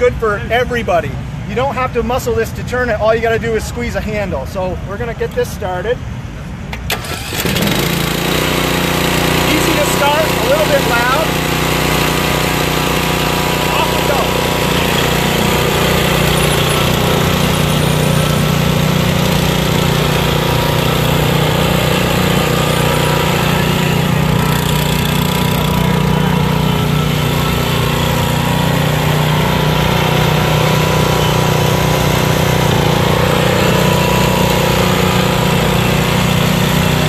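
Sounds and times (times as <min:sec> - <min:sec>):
mower engine running: 0:06.8 - 0:37.0.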